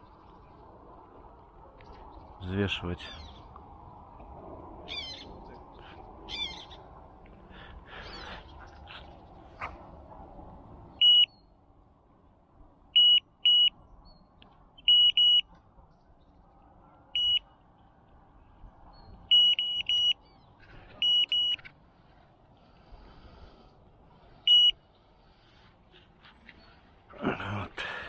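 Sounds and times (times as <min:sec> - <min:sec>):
bite alarm beeping: 0:11.0 - 0:11.3, 0:13.0 - 0:13.8, 0:14.8 - 0:15.4, 0:17.2 - 0:17.4, 0:19.3 - 0:20.2, 0:21.0 - 0:21.7, 0:24.5 - 0:24.8.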